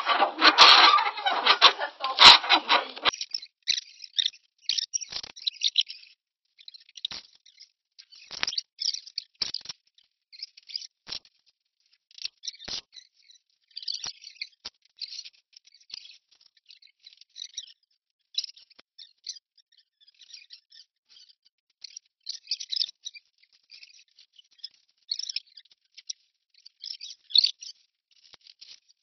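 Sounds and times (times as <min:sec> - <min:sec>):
adhesive tape ripping off roll: 0:00.0 - 0:03.1.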